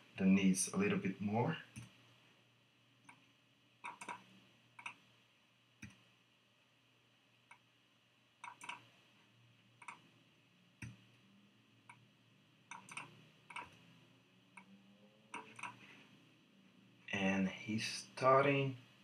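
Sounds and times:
faint low hum: 0.0 - 19.0
computer mouse clicks: 1.7 - 2.0, 3.0 - 3.2, 3.8 - 5.0, 5.8 - 6.0, 8.4 - 8.9, 9.8 - 10.0, 10.8 - 11.0, 12.7 - 13.8, 15.3 - 15.9.

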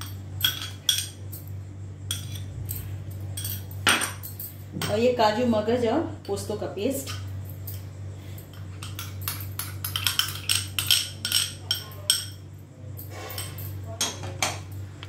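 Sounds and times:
spoon clinking against a dish: 8.5 - 12.5.

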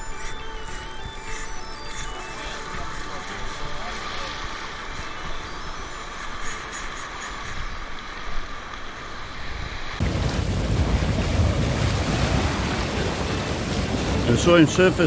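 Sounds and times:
surf washing in shallows: 2.9 - 15.0
wind buffeting microphone: 9.4 - 15.0.

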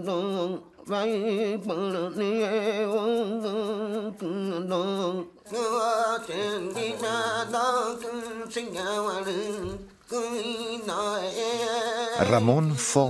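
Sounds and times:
man chanting: 5.7 - 9.7, 10.4 - 13.0.

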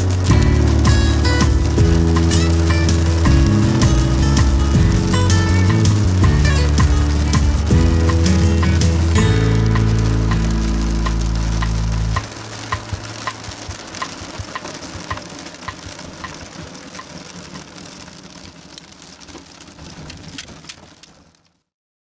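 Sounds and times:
background music: 0.0 - 14.9
light regular ticking: 0.0 - 21.5
rain on car roof: 0.0 - 21.7.

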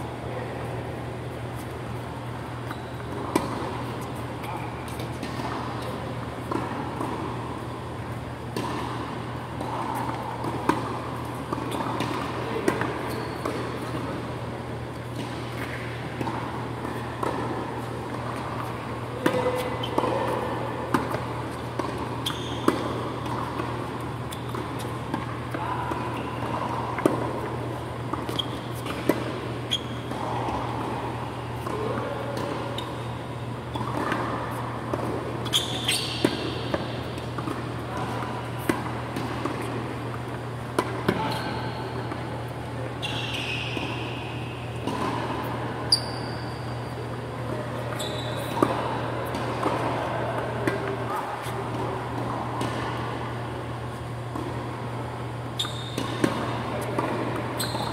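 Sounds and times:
low hum in hall: 0.0 - 57.9
tennis ball bouncing: 1.6 - 33.0, 33.6 - 42.2, 43.4 - 46.1, 47.9 - 57.9.

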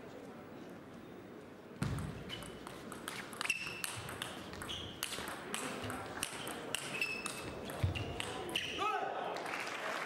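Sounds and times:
table tennis ball hits: 1.8 - 8.6.

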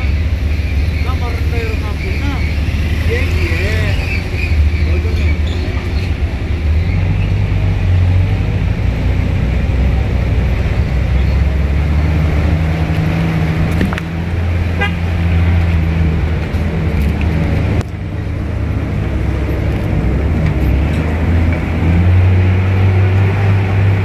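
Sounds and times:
vehicle engine running: 0.0 - 24.0
horn toot: 14.7 - 15.3.

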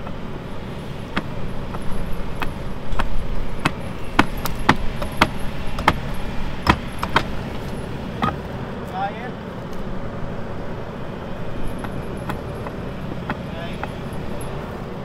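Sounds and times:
skid steer engine running: 0.0 - 15.0
sharp metallic clanks and knocks: 1.0 - 8.5, 11.6 - 14.7.

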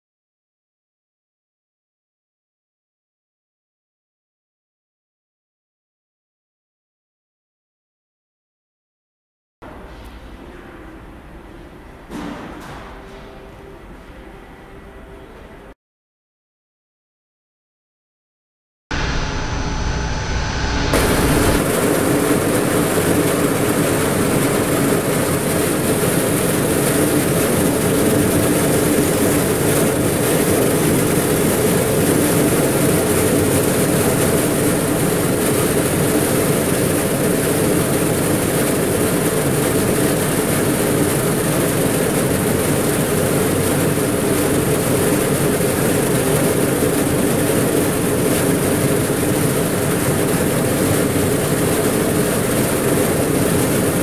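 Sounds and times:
vibratory screener humming: 18.9 - 54.0.

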